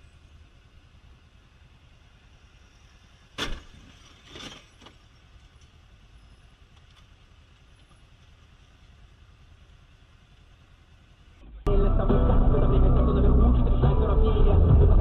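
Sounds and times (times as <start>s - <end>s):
vehicle and road rumble: 0.0s - 15.0s.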